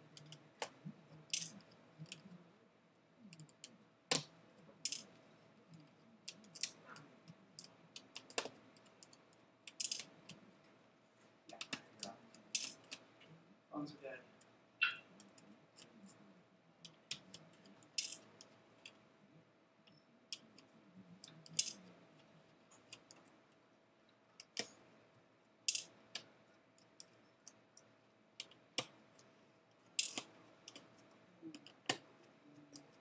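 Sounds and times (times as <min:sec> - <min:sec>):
faint steady hum: 0:00.0 - 0:33.0
screwdriver clicking on tiny screws: 0:30.0 - 0:31.0.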